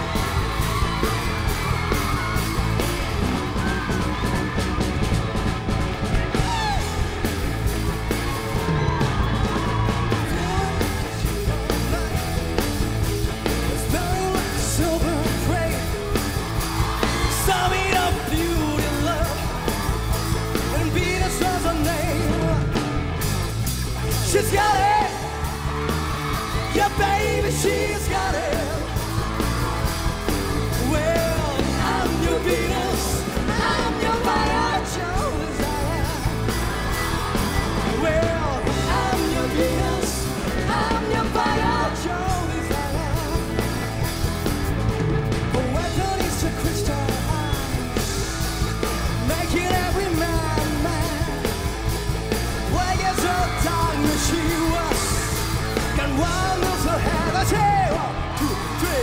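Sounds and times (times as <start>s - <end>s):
rock band playing live: 0.0s - 59.0s
man singing lead vocal: 6.3s - 7.2s, 8.7s - 16.3s, 16.9s - 22.9s, 24.1s - 29.5s, 30.6s - 44.1s, 45.4s - 59.0s.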